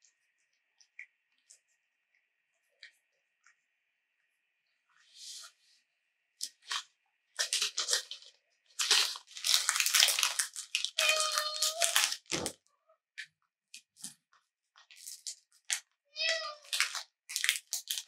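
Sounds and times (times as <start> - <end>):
plastic packet crinkling and tearing: 7.4 - 12.6, 14.8 - 15.8, 16.6 - 18.0.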